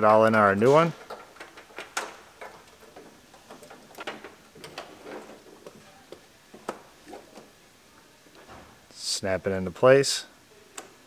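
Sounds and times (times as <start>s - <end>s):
plastic clicks and rustles on metal: 0.0s - 7.5s.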